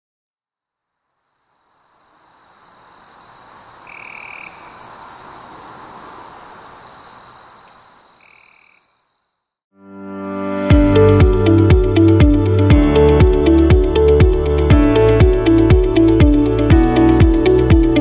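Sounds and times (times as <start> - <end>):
frogs and insects calling: 0.9 - 9.6.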